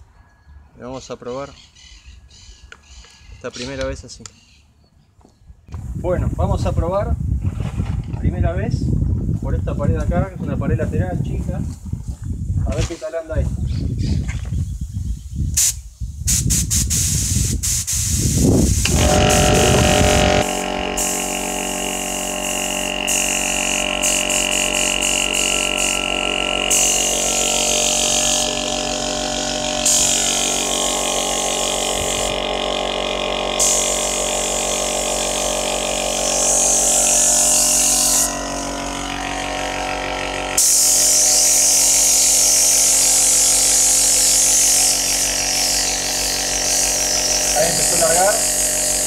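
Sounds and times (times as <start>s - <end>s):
spray gun hissing: 15.6s - 39.8s, 40.5s - 49.0s
air compressor humming: 16.3s - 49.0s.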